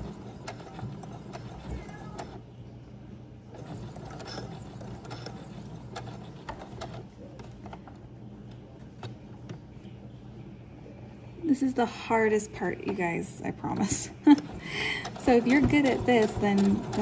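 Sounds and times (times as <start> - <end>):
sewing machine stitching: 0.0 - 2.4, 3.5 - 7.1, 13.8 - 17.0.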